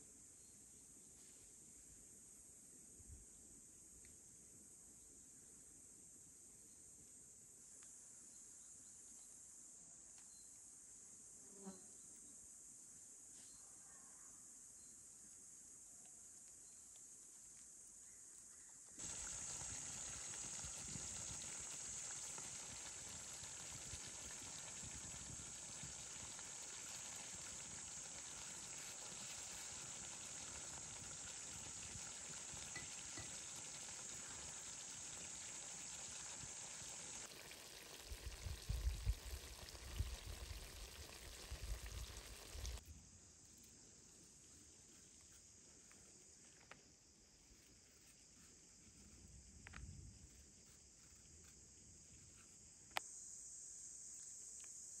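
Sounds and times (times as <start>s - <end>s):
quiet outdoor background: 0.0s - 55.0s
food sizzling in a pan: 19.0s - 42.8s.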